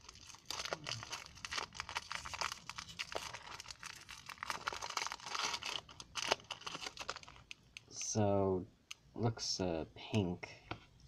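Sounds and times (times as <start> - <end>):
wrapper crinkling and tearing: 0.0 - 7.9.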